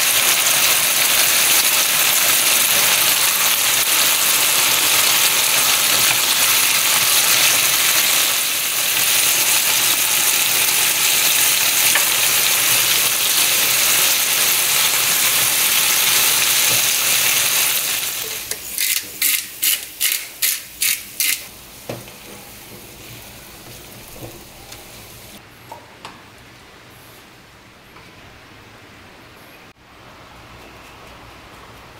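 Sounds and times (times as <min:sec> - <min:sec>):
food sizzling in a frying pan: 0:00.0 - 0:25.4
pepper mill grinding: 0:18.2 - 0:21.5.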